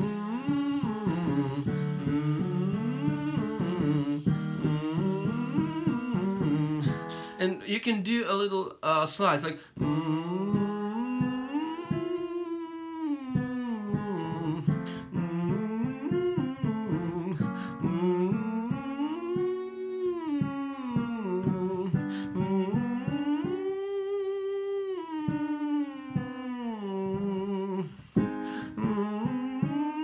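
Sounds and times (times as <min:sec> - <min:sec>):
instrumental chords: 0:00.0 - 0:08.6
man humming vocal exercises: 0:00.0 - 0:30.0.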